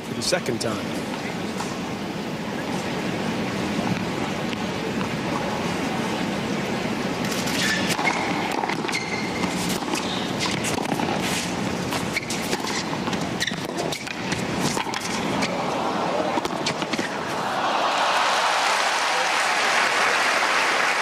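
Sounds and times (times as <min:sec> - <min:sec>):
crowd murmur: 0:00.8 - 0:11.9, 0:13.7 - 0:21.0
racket striking tennis ball: 0:07.3 - 0:15.7, 0:16.3 - 0:17.2.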